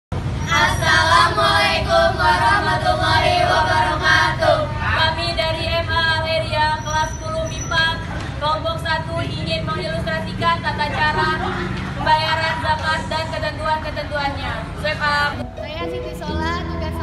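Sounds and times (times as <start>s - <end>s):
women singing in unison: 0.5s - 13.9s.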